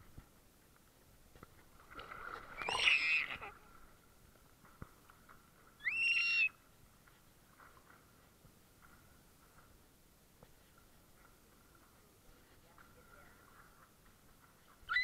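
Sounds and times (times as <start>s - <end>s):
baby squealing with delight: 5.8s - 6.5s.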